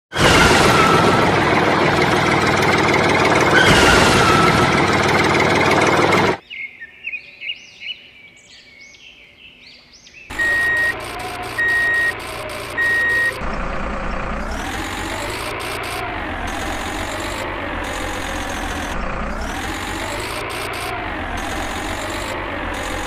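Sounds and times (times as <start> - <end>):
loud engine noise: 0.1 - 6.4, 10.3 - 23.0
truck reversing alarm beeping: 0.1 - 6.4, 10.3 - 23.0.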